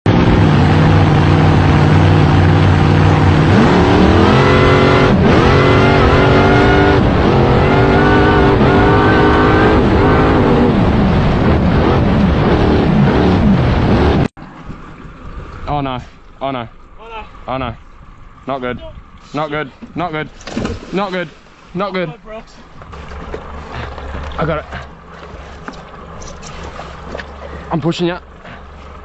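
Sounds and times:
supercharged boat engine revving: 0:00.1 - 0:14.3, 0:22.5 - 0:29.0.

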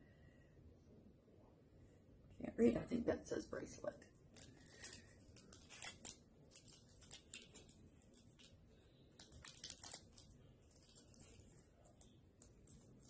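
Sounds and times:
plastic baggie crinkling: 0:04.3 - 0:13.0.

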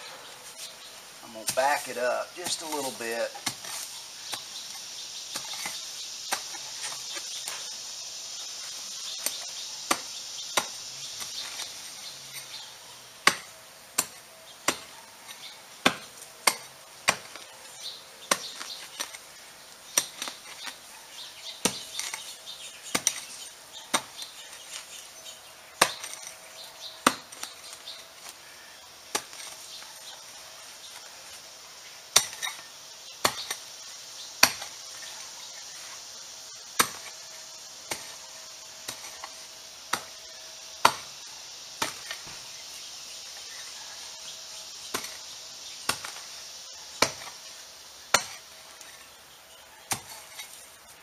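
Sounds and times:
hoe chopping into hard dirt: 0:01.4 - 0:04.5, 0:13.2 - 0:17.4, 0:22.9 - 0:24.8, 0:25.8 - 0:26.3, 0:27.0 - 0:28.0, 0:29.1 - 0:30.2, 0:32.1 - 0:32.6, 0:33.2 - 0:33.6, 0:34.4 - 0:35.1, 0:36.8 - 0:37.2, 0:37.8 - 0:38.2, 0:39.9 - 0:40.2, 0:40.8 - 0:41.1, 0:41.8 - 0:42.4, 0:44.9 - 0:45.2, 0:45.9 - 0:46.3, 0:47.0 - 0:47.4, 0:48.1 - 0:48.5, 0:49.9 - 0:50.6.

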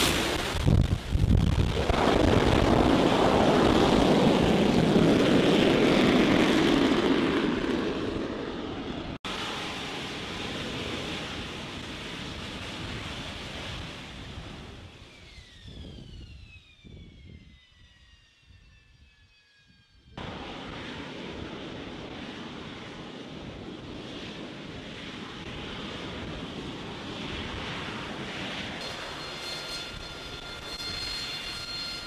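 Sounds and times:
high whine: 0:00.0 - 0:06.1, 0:28.8 - 0:32.0
loud jet roar: 0:00.0 - 0:17.5, 0:20.0 - 0:32.0
jet engine whine winding down: 0:00.0 - 0:32.0.

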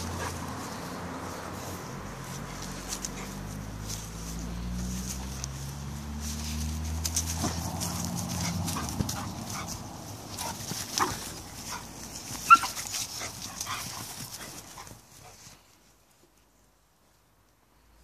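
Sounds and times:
dogs yelping and whining: 0:12.4 - 0:13.8.

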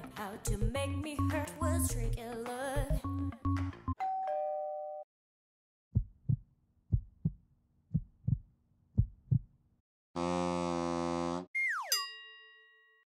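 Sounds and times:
heartbeat thumps: 0:05.9 - 0:09.5
loud buzzer: 0:10.2 - 0:11.5.

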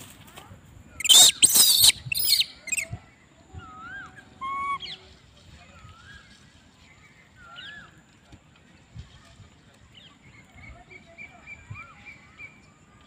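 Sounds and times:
birds chirping: 0:01.0 - 0:08.9.

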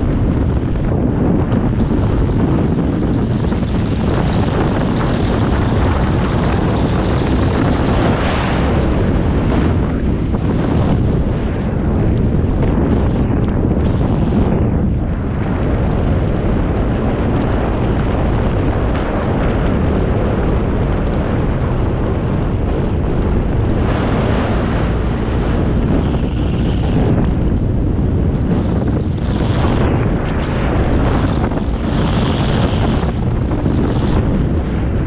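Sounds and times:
wind rumbling on microphone: 0:00.0 - 0:35.0.

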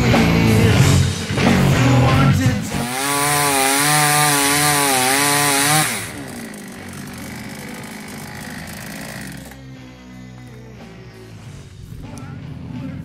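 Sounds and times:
chainsaw cutting log: 0:02.6 - 0:10.5.

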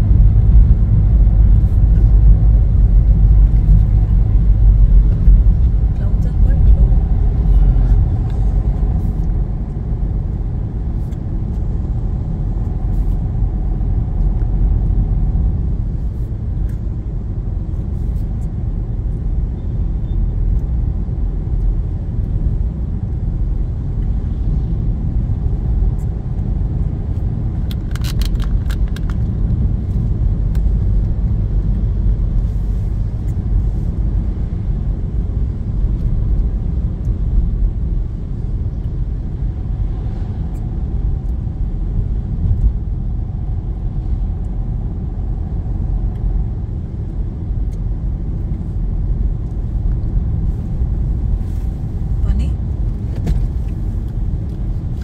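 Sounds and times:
engine and tyre rumble: 0:00.0 - 0:55.0.

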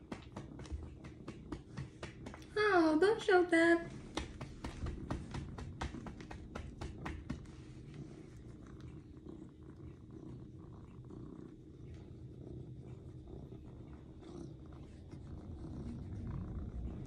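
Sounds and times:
patting on cat's rump: 0:00.0 - 0:02.6, 0:03.8 - 0:09.6
cat purring: 0:00.0 - 0:17.0.

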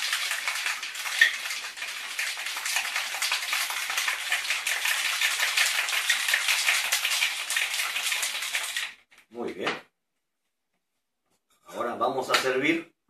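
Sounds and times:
ice rattling in cocktail shaker: 0:00.0 - 0:09.0.

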